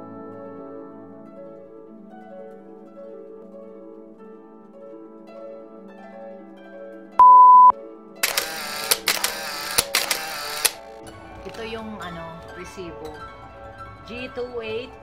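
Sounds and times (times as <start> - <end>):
loud electronic beep: 7.2 - 7.7.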